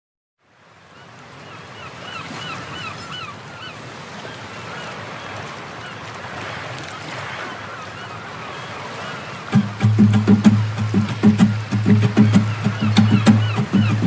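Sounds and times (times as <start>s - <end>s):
bird calling short notes: 8.9s - 14.0s
steady rushing noise: 9.5s - 14.0s.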